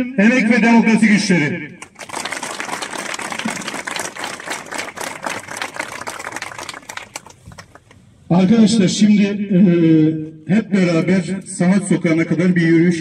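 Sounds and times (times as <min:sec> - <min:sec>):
crowd applauding: 0:01.8 - 0:08.0.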